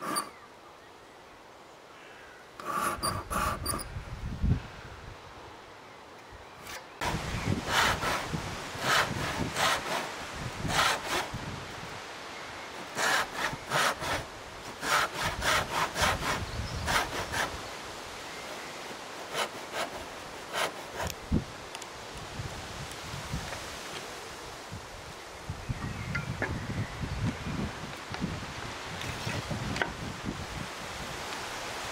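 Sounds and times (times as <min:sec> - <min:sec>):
hand saw cutting wood: 0:00.0 - 0:00.4, 0:02.6 - 0:03.8, 0:06.6 - 0:11.4, 0:12.8 - 0:17.6, 0:18.5 - 0:21.2.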